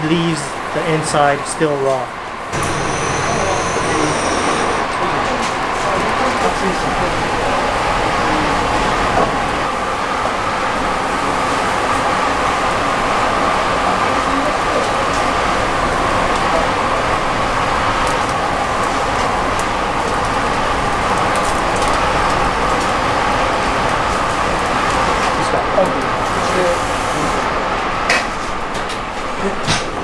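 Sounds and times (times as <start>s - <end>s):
fire roaring: 2.5s - 10.0s, 10.9s - 28.9s
fire crackles: 2.6s - 4.9s, 14.5s - 27.2s.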